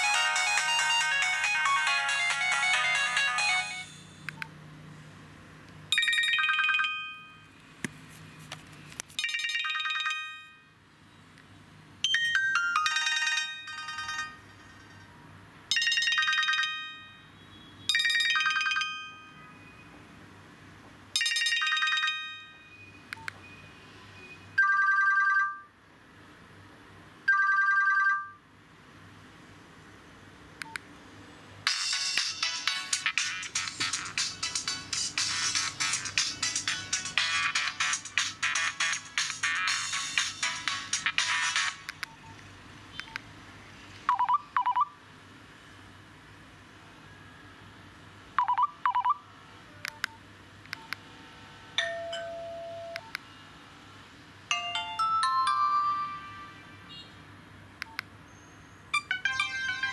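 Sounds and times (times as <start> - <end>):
busy ringtone tune: 0.0 - 4.3, 5.9 - 7.5, 9.2 - 10.8, 12.0 - 14.8, 15.7 - 19.8, 21.2 - 23.0, 24.6 - 25.7, 27.3 - 28.4, 31.7 - 41.9, 44.1 - 44.9, 48.4 - 49.3, 51.8 - 53.1, 54.5 - 57.0, 58.9 - 59.9
high chiming ringtone phrase: 0.0 - 4.3, 6.0 - 7.4, 12.1 - 14.4, 15.7 - 17.2, 54.5 - 56.8, 58.9 - 59.9.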